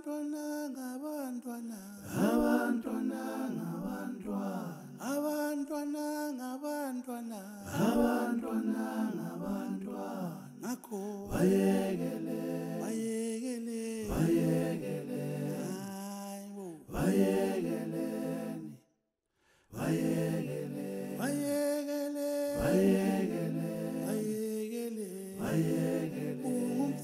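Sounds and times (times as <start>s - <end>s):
unaccompanied voices singing a chant: 2.0s - 5.2s, 7.6s - 18.8s, 19.8s - 27.0s.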